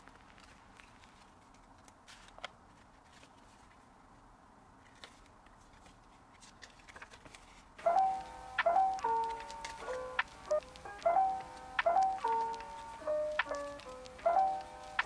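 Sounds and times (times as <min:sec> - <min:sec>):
paper and plastic being handled: 0:00.0 - 0:03.9, 0:04.8 - 0:08.2, 0:08.8 - 0:11.0.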